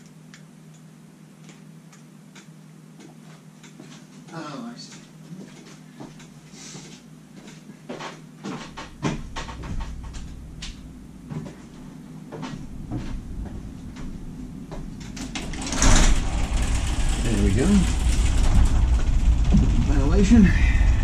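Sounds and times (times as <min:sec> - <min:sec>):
low steady hum: 0:00.0 - 0:21.0
door knocking and clattering: 0:08.6 - 0:10.3, 0:15.1 - 0:20.0.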